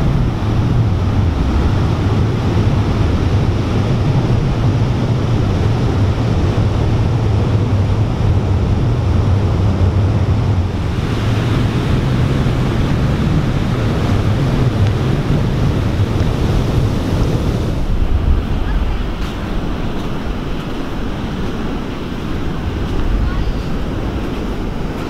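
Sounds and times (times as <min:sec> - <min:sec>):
ocean waves breaking: 0:00.0 - 0:25.0
wind rumble on microphone: 0:00.0 - 0:25.0
foamy wash running up sand: 0:10.6 - 0:25.0.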